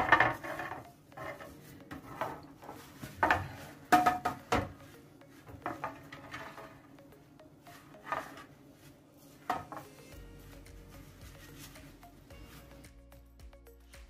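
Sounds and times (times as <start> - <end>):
cup and tray knocking and clinking: 3.2 - 4.8.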